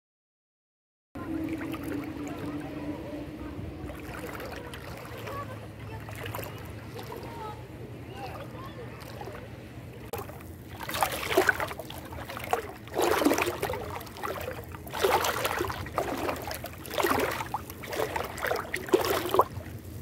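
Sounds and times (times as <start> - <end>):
sea water sloshing and splashing: 1.2 - 20.0.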